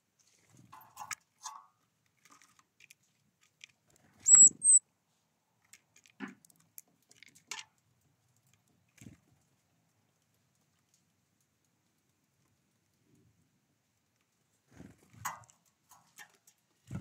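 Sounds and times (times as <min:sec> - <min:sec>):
beaks tapping on seeds: 0:04.3 - 0:04.8
high thin bird calls: 0:04.3 - 0:04.8.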